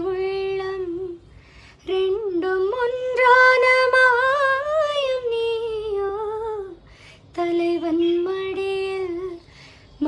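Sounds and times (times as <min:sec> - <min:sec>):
woman breathing: 0:01.2 - 0:01.9, 0:06.8 - 0:07.4, 0:09.4 - 0:10.0.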